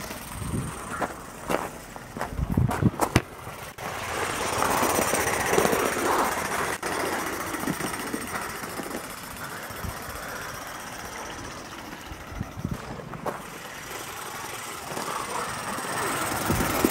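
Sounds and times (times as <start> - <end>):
steam locomotive hissing: 3.7 - 16.9.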